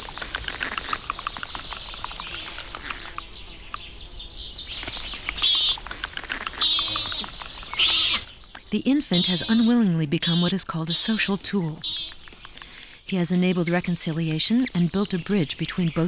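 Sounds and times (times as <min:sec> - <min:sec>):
clicks and rustles: 0:00.0 - 0:03.3, 0:04.7 - 0:07.8
monkey infant squealing: 0:05.4 - 0:08.3, 0:09.1 - 0:11.2.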